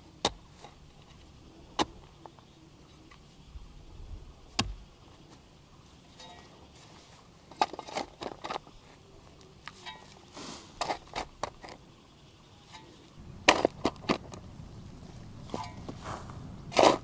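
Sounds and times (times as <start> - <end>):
brief hiss: 10.3 - 10.8.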